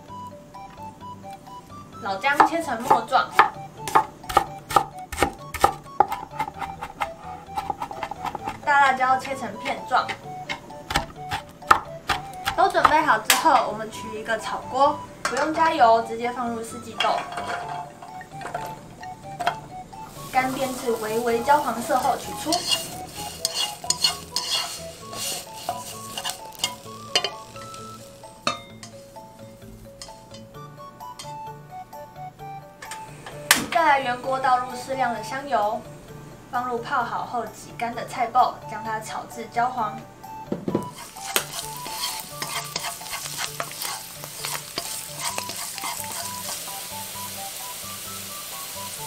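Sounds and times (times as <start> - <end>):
beans sizzling: 0.0 - 31.6, 40.8 - 49.0
soft background music: 0.0 - 49.0
chopsticks clicking and scraping in wok: 2.4 - 13.7, 20.2 - 29.0, 29.8 - 30.5, 40.9 - 47.2.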